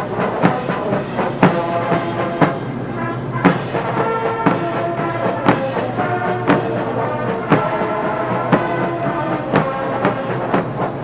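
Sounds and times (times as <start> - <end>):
brass band playing a march: 0.0 - 11.0
steady drum beat: 0.0 - 11.0.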